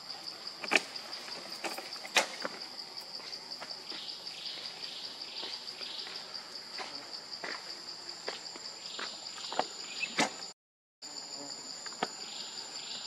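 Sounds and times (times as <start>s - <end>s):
high-pitched insect drone: 11.0s - 13.0s.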